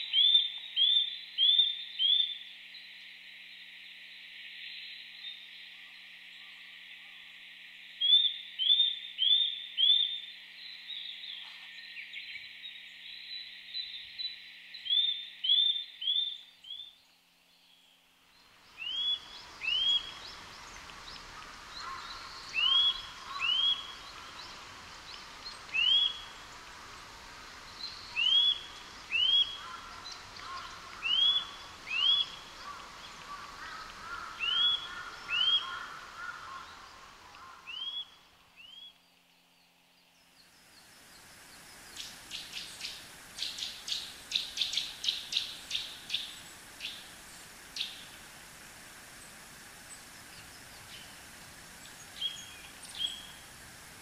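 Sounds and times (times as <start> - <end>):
bird whistled song: 18.8 - 20.3, 22.5 - 24.0, 25.7 - 26.3, 27.9 - 29.6, 31.0 - 32.4, 37.7 - 39.0.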